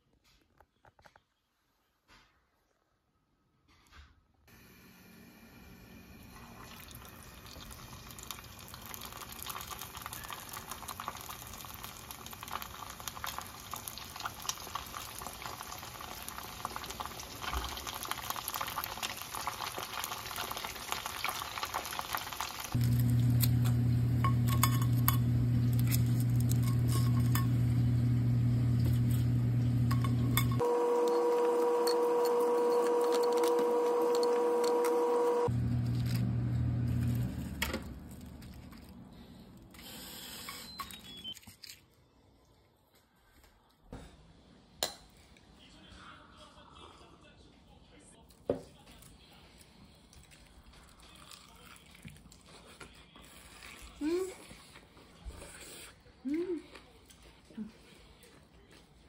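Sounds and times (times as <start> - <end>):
chicken sizzling in hot oil: 4.5 - 29.9.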